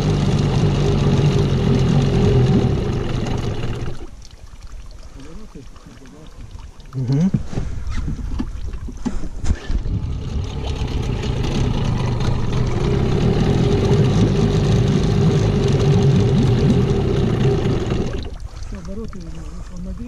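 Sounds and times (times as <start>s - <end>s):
outboard motor running: 0.0s - 4.3s, 8.3s - 20.0s.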